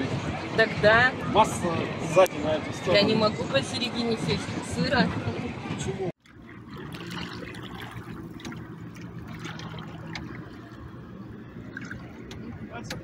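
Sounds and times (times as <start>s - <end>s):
low hum: 6.2s - 13.0s
water trickling and splashing: 6.2s - 13.0s.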